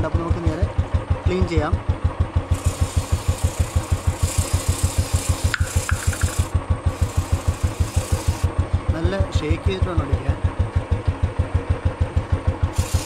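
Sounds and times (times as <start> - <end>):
aerosol spray hissing: 2.5 - 8.5, 12.8 - 13.0
motorcycle engine thumping: 5.2 - 12.8.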